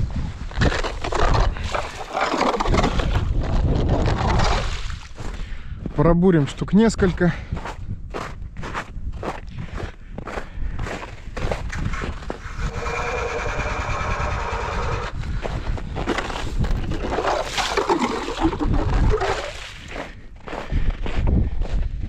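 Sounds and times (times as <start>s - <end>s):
ice auger grinding through ice: 0.6s - 3.3s, 11.9s - 15.2s, 16.1s - 19.9s
auger squealing: 12.4s - 15.2s.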